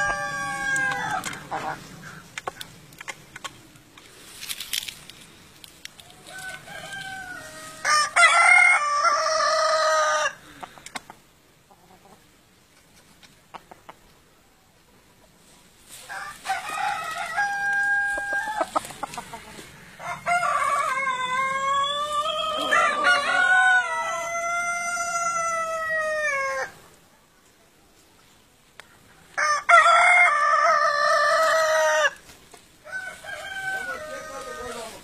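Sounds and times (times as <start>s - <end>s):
roosters crowing: 0.0s - 2.3s, 6.0s - 10.6s, 15.9s - 26.8s, 29.3s - 35.0s.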